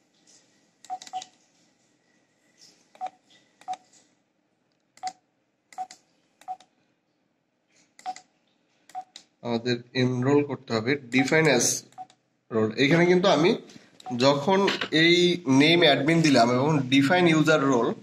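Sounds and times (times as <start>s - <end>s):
keypad beeps: 0.9s - 1.3s, 3.0s - 3.8s, 5.8s - 6.6s, 8.0s - 8.2s, 8.9s - 9.2s.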